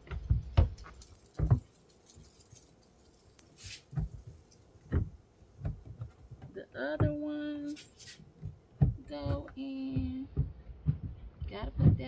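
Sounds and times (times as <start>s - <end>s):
hard plastic knocks and clicks: 0.0s - 1.7s, 3.9s - 7.5s, 8.2s - 12.0s
brief rustle: 2.0s - 4.0s.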